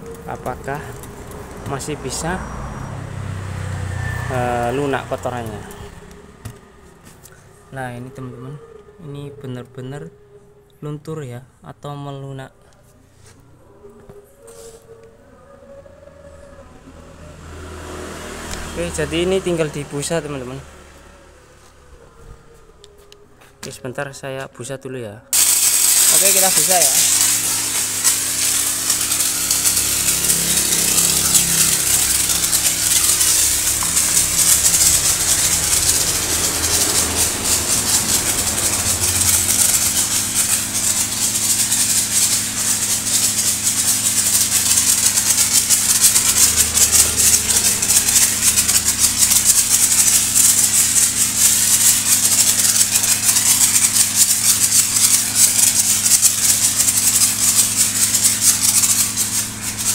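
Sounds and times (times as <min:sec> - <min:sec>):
foam sprayer hissing: 0:25.3 - 0:59.9.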